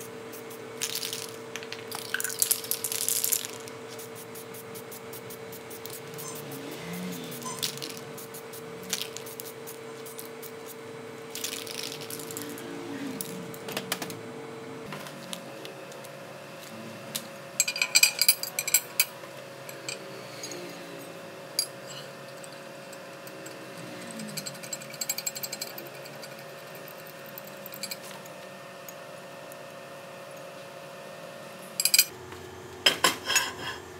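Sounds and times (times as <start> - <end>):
spray paint can hissing: 0.3 - 6.2, 7.3 - 10.8
metallic clinks and rattles: 23.3 - 28.1.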